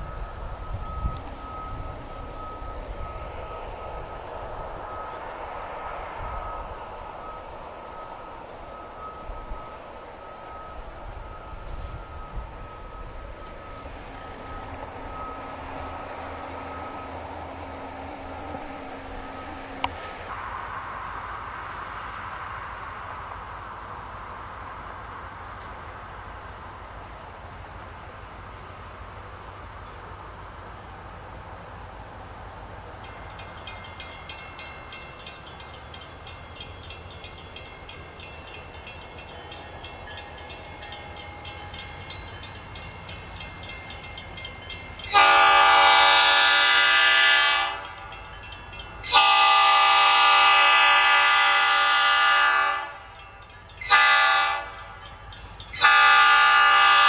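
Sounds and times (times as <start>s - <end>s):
diesel locomotives rumbling: 0.0s - 57.0s
insects chirping: 0.0s - 57.0s.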